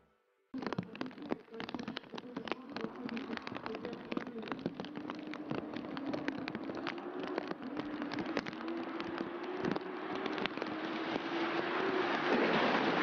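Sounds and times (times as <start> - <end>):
heavy rain: 0.6 - 13.0
raindrops ticking on microphone: 0.6 - 13.0
faint car engines accelerating: 7.0 - 13.0.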